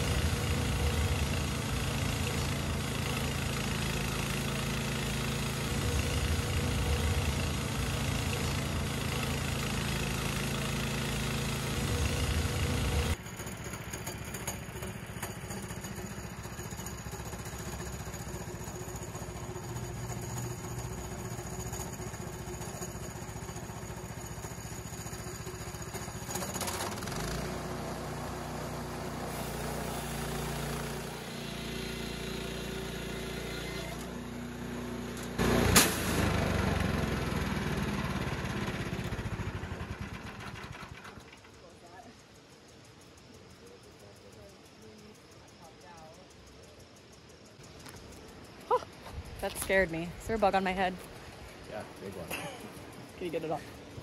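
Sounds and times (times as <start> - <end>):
sawmill gas engine under load: 0.0 - 41.8
loud crack: 35.4 - 36.6.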